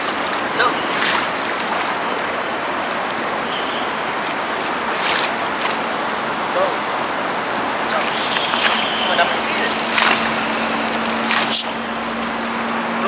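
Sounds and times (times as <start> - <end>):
net splashing out of water: 0.0 - 2.0, 4.2 - 5.9, 7.6 - 12.7
flowing river water: 0.0 - 13.0.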